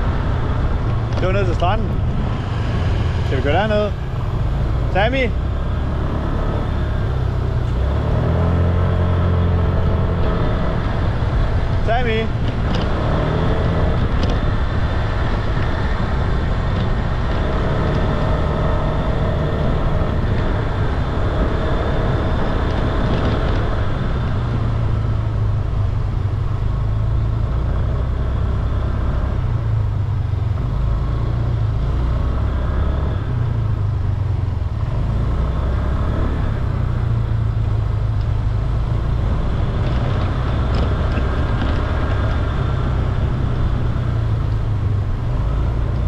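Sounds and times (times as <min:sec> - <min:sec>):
wind rumble on microphone: 0:00.0 - 0:46.0.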